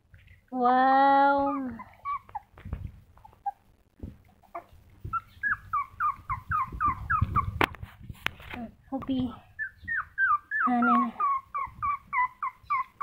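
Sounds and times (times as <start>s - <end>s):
puppy whimpering: 1.0s - 7.7s, 9.5s - 13.0s.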